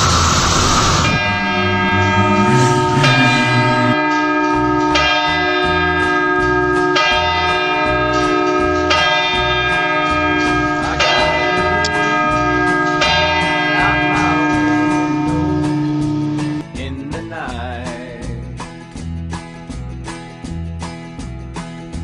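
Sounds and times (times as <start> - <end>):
church bell tolling: 1.0 - 16.6.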